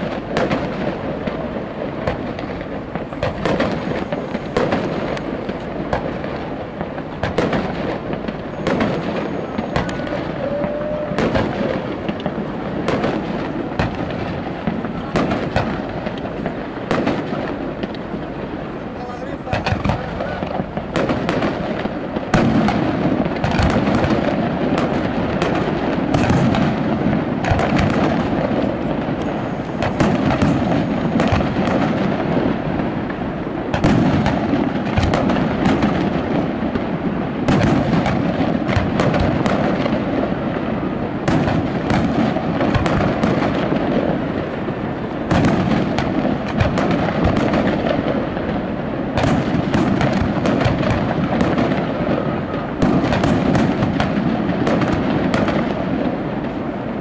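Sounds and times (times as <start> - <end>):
fireworks bursting with sharp bangs: 0.0 - 57.0
continuous din: 0.4 - 13.0, 13.7 - 21.4.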